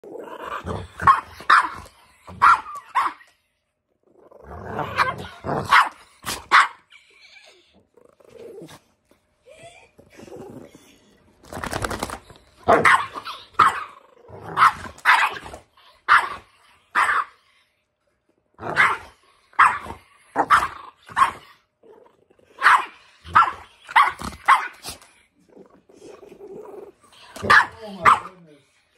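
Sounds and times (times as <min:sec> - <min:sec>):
dogs barking: 0:01.0 - 0:03.2, 0:05.0 - 0:06.8, 0:12.7 - 0:13.9, 0:22.6 - 0:24.9, 0:27.4 - 0:28.3.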